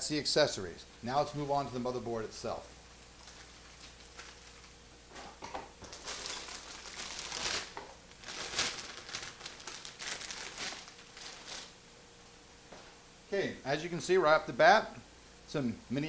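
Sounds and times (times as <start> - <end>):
metallic bag crinkling: 3.2 - 4.8, 5.8 - 11.8.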